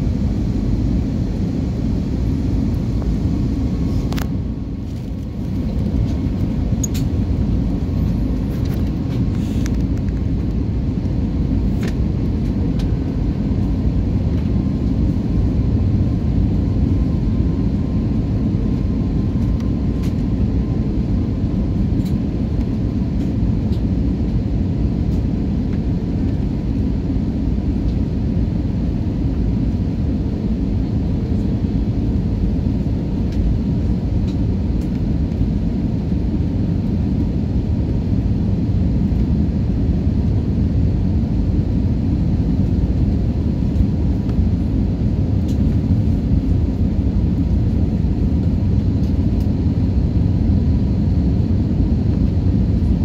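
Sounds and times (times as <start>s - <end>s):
airliner cabin engine rumble: 0.0s - 53.0s.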